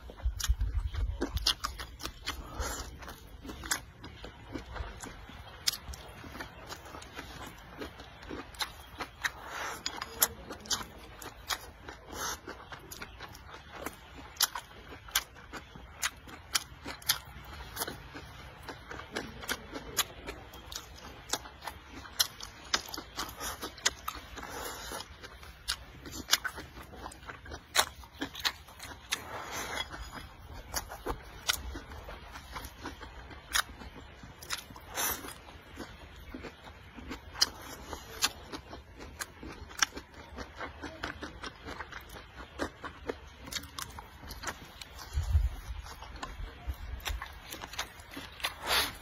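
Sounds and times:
chewing food: 0:00.0 - 0:49.0
wet mouth sounds: 0:22.2 - 0:49.0.

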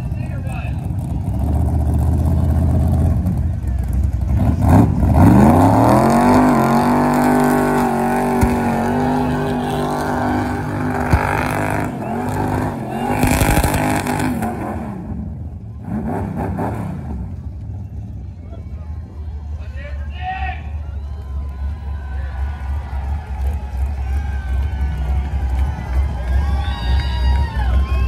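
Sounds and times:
van engine revving: 0:00.0 - 0:17.6.

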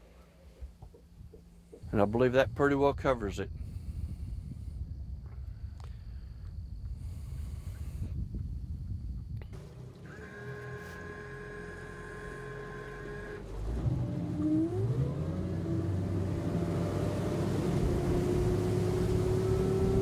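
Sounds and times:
outboard motor revving: 0:09.6 - 0:20.0.

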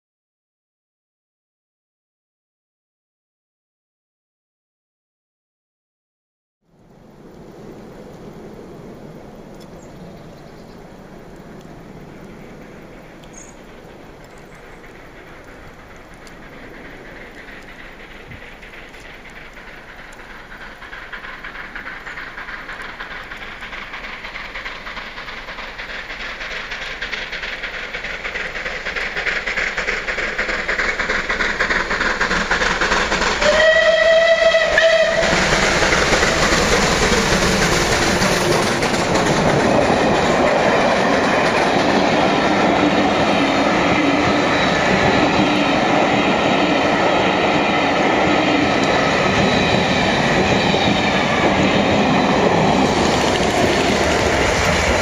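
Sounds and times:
steam locomotive running: 0:06.8 - 0:55.0
train rushing past: 0:10.2 - 0:55.0
steam train whistle: 0:33.3 - 0:37.0.

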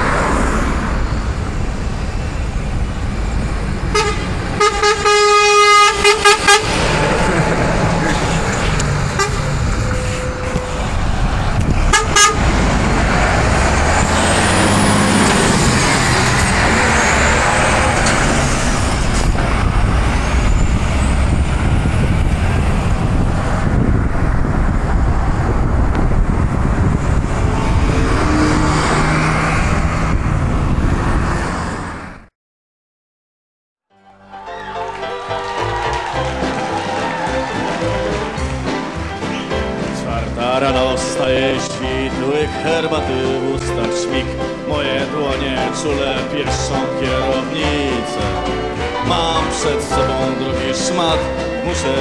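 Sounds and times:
car passing: 0:00.0 - 0:32.3
truck engine and tyre noise: 0:00.0 - 0:32.3, 0:34.6 - 0:52.0
truck horn toots: 0:03.9 - 0:07.3, 0:07.9 - 0:11.0, 0:11.8 - 0:12.6.

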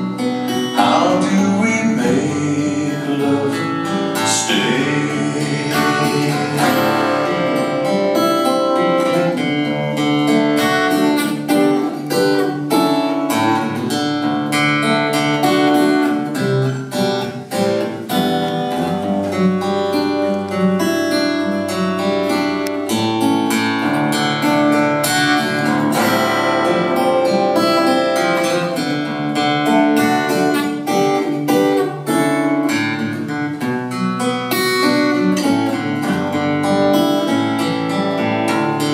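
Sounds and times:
acoustic guitar picking and strumming: 0:00.0 - 0:38.9.

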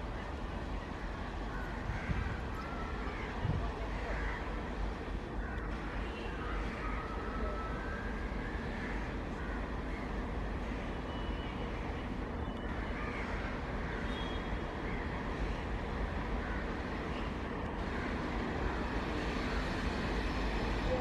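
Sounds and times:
diesel locomotive engine rumble: 0:00.0 - 0:21.0.

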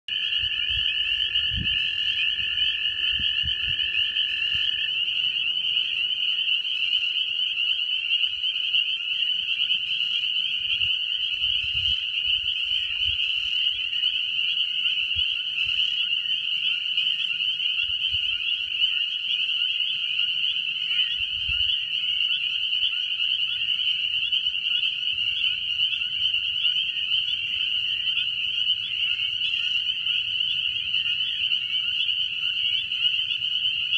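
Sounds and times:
low-pitched frog trill: 0:00.1 - 0:13.9
frogs and toads trilling: 0:00.1 - 0:33.9.

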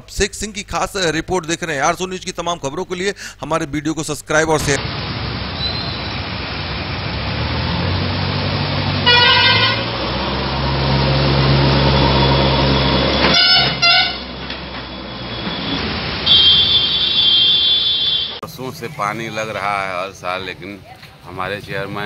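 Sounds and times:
road traffic: 0:04.6 - 0:22.0
heavy vehicle engine running: 0:04.8 - 0:17.4
vehicle horns honking: 0:09.0 - 0:18.4.

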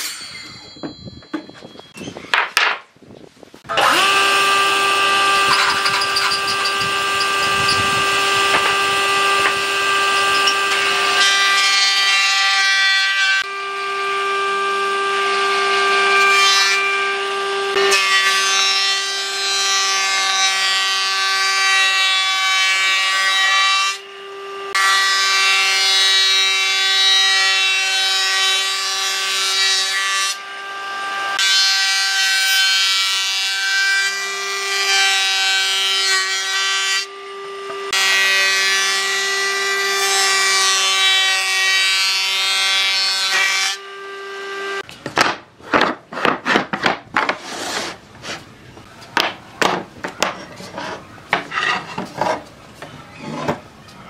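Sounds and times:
thickness planer whining: 0:03.6 - 0:45.0.

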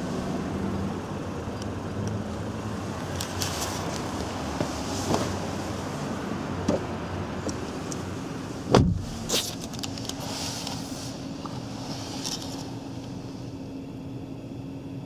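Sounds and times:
steady low hum: 0:00.0 - 0:15.0
car door thud: 0:08.7 - 0:09.5.

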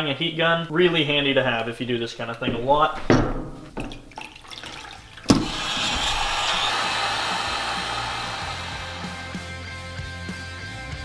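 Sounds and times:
heat gun blowing: 0:05.3 - 0:09.8.

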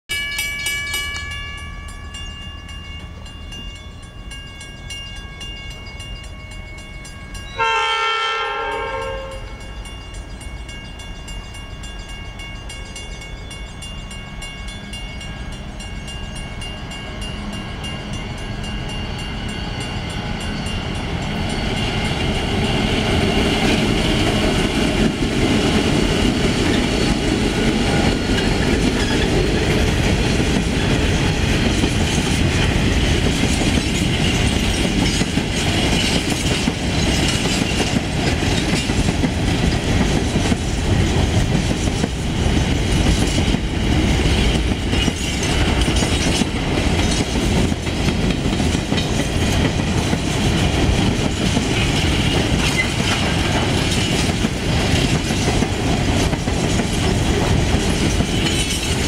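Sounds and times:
freight train rumbling past: 0:00.1 - 0:59.0
locomotive horn: 0:07.6 - 0:09.7.

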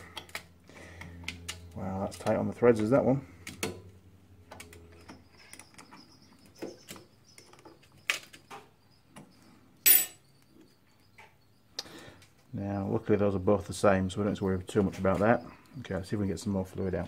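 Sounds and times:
spanner set down on steel bench: 0:09.9 - 0:10.2.

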